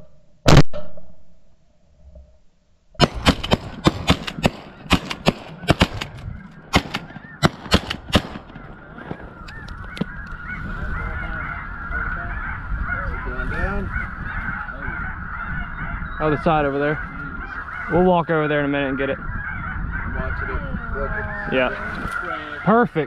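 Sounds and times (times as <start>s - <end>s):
shotgun shots: 3.0s - 9.3s
geese honking: 4.6s - 23.0s.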